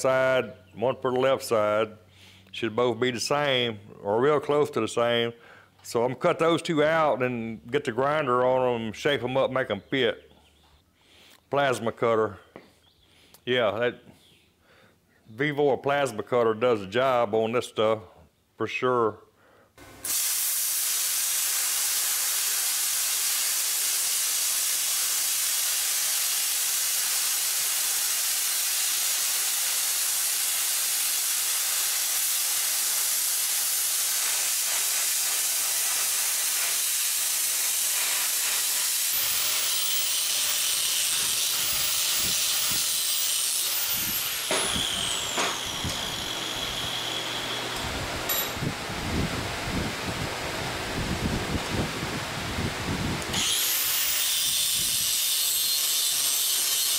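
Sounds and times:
plasma cutter hissing: 20.0 - 47.4.

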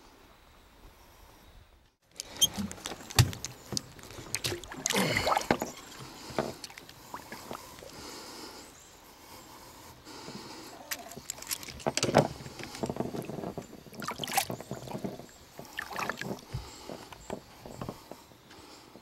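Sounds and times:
fish splashing at water surface: 2.1 - 8.0, 13.9 - 16.6
wash of water: 2.4 - 7.9, 15.6 - 16.6.

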